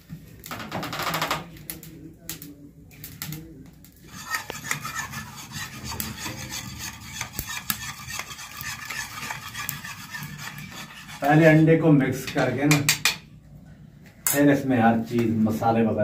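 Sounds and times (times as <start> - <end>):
spoon beating eggs in metal bowl: 4.1 - 11.6.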